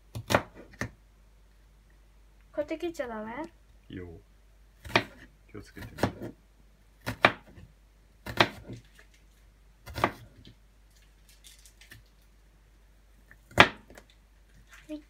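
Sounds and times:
knife slicing onion on cutting board: 0:00.1 - 0:01.0, 0:04.8 - 0:06.4, 0:07.0 - 0:08.9, 0:09.8 - 0:10.5.

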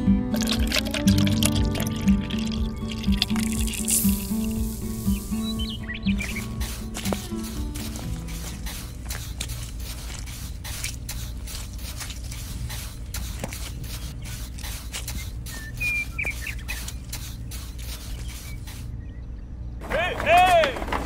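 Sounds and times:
steady low hum: 0:00.0 - 0:20.1
high whistle-like chirps: 0:02.0 - 0:08.7, 0:15.1 - 0:19.3
trowel scraping wet cement: 0:03.3 - 0:18.9.

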